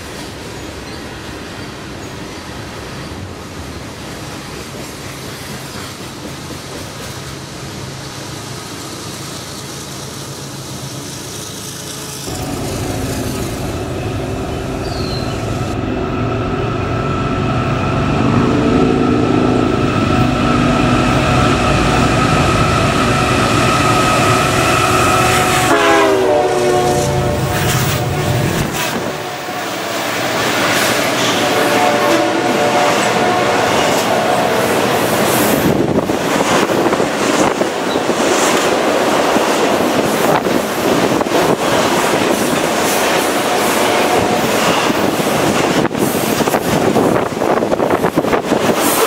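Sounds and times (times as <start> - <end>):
diesel locomotives passing: 0.0 - 49.0
train cars rolling on rails: 0.0 - 49.0
train horn blast: 12.3 - 30.3, 31.0 - 34.9, 43.4 - 45.0.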